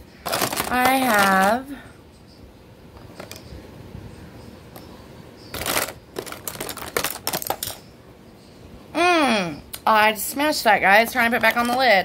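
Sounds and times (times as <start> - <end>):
packaging rustle: 0.2 - 1.6, 5.5 - 7.8.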